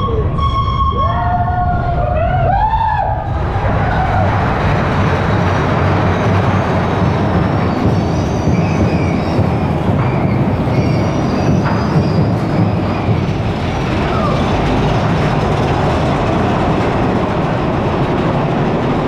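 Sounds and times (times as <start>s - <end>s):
high wheel squeal: 0.0s - 2.6s, 3.7s - 15.4s
roller coaster cars rumbling: 0.0s - 19.0s.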